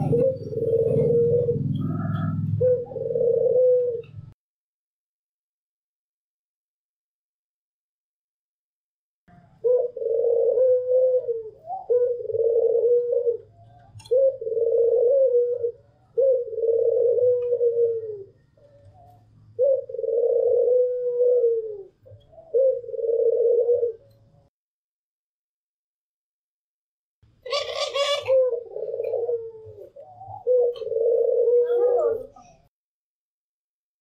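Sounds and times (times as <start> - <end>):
dove cooing: 0.0 - 4.4, 9.3 - 24.5, 27.4 - 32.7.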